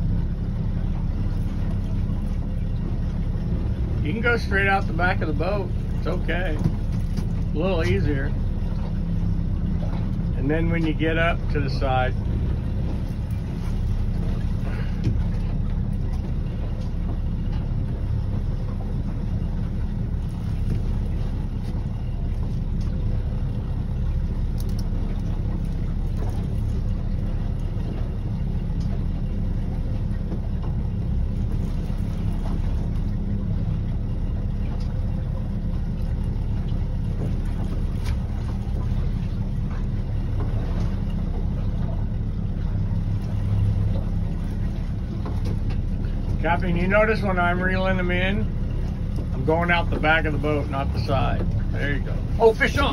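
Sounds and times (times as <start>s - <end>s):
boat engine rumbling: 0.0s - 52.9s
faint small clicks: 24.5s - 26.4s.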